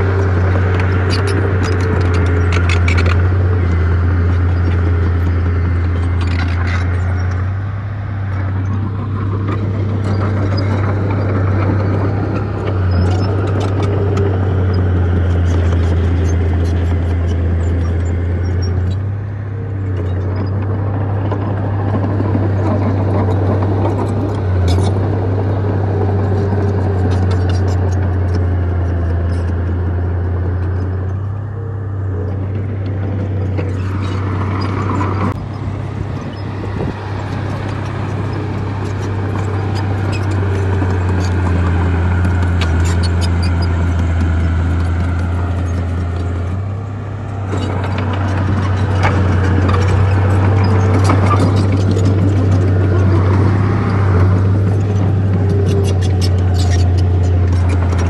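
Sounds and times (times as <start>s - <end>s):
bulldozer diesel engine running: 0.0s - 58.0s
clanks and scrapes of tracks: 32.4s - 58.0s.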